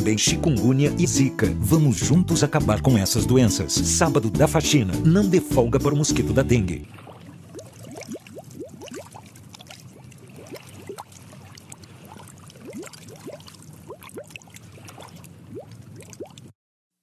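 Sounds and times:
low steady rumble: 2.8 - 16.5
underwater bubbles: 6.8 - 16.5.

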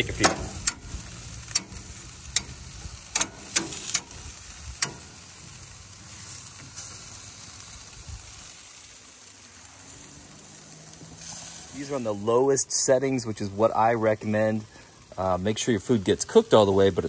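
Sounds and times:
food sizzling on a grill: 0.0 - 17.0
metal tongs clicking on grill basket: 0.1 - 4.2, 4.8 - 5.2.

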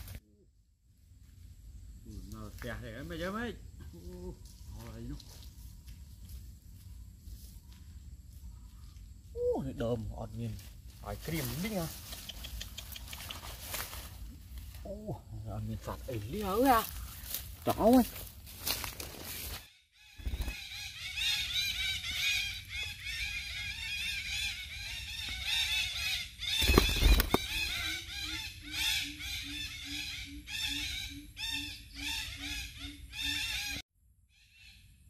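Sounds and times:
parakeets squawking: 20.2 - 33.8.

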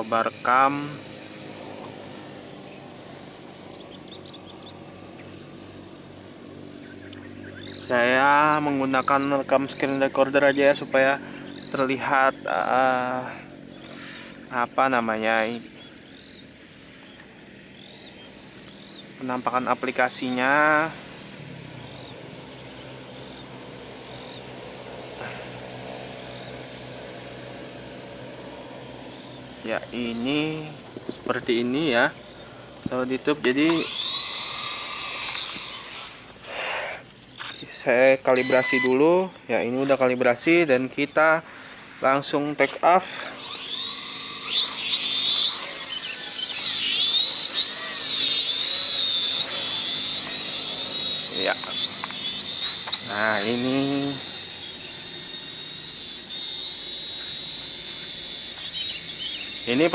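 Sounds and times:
toy drone motors whining: 0.0 - 39.2, 39.8 - 59.9
outdoor background hiss: 0.0 - 59.9
faint high chirps: 37.2 - 41.3, 43.4 - 59.9.

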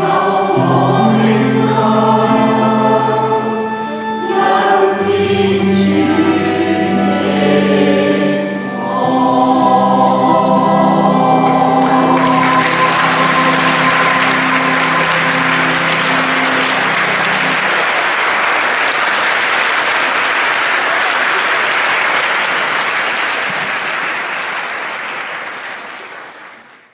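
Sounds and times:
choir singing chord: 0.0 - 19.3
audience applauding: 11.2 - 26.9.

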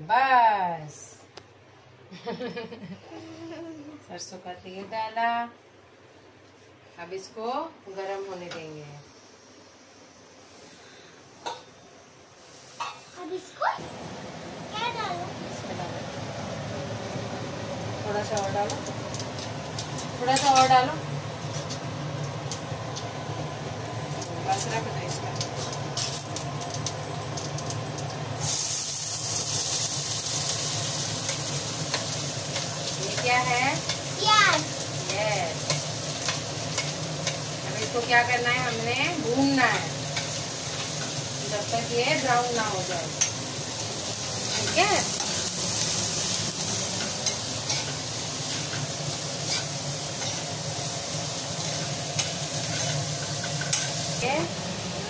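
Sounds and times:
onions sizzling in oil: 7.9 - 55.0
steady low hum: 13.8 - 28.4.

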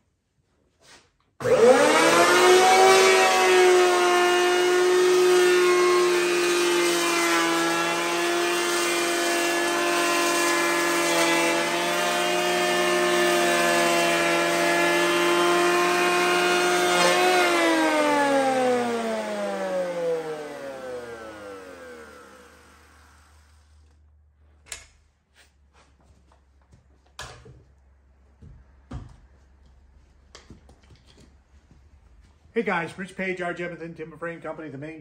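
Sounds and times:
electric planer whining: 1.4 - 24.0.

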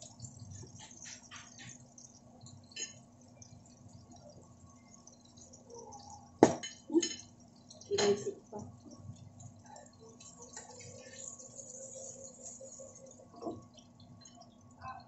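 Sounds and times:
metal tongs and dishes clinking: 6.6 - 8.4.

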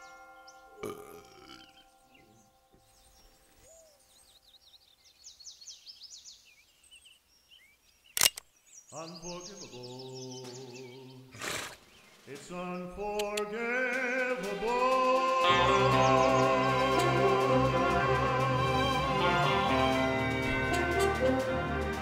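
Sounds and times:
birds chirping: 0.0 - 22.0
music: 13.4 - 22.0.

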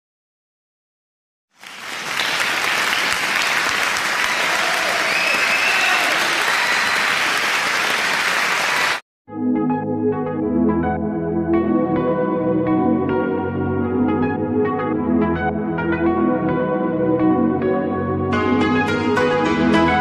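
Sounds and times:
crowd applause: 1.6 - 9.0.

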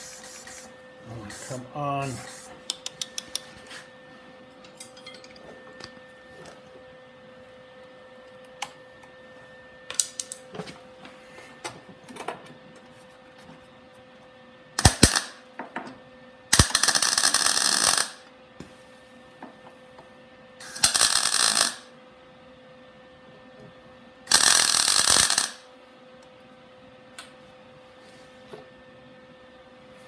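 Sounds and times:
welder crackling arc: 14.8 - 15.5, 16.5 - 18.3, 20.6 - 22.0, 24.3 - 25.7.

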